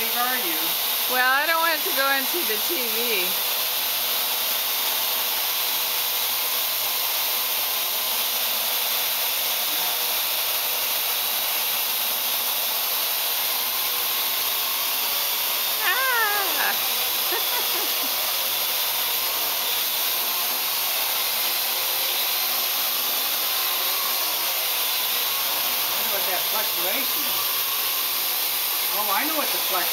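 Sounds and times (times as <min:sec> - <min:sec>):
drone rotors whirring: 0:08.1 - 0:29.9.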